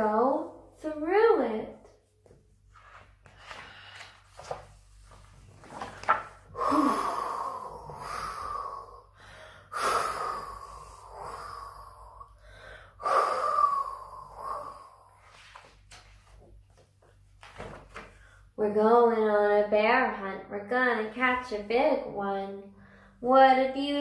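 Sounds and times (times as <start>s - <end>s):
woman imitating howling wind: 6.6s - 8.9s.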